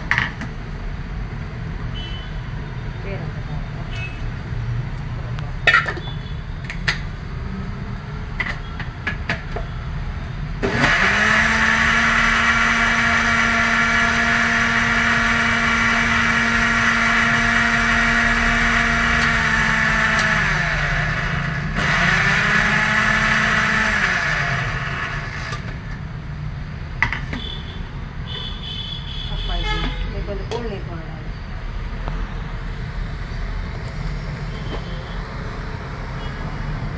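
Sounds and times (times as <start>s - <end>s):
mixer grinder running: 10.6s - 26.0s.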